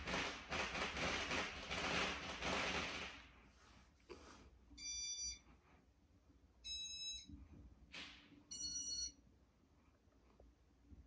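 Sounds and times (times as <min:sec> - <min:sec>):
short electronic beeps: 0:04.8 - 0:05.4, 0:08.5 - 0:09.2.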